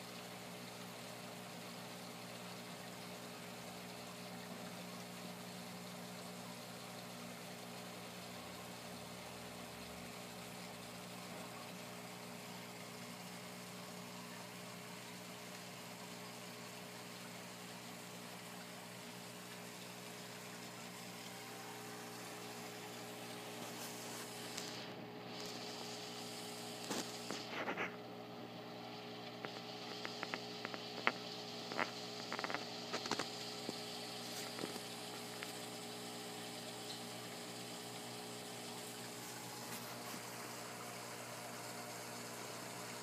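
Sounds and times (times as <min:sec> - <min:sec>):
electrical hum with hiss: 0:00.0 - 0:43.0
small clicks and taps: 0:29.4 - 0:33.8.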